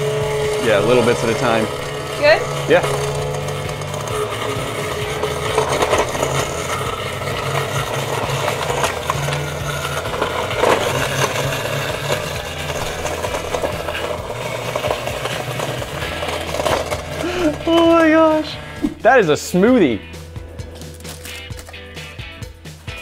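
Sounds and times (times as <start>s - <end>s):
garbage disposal grinding: 0.0s - 23.0s.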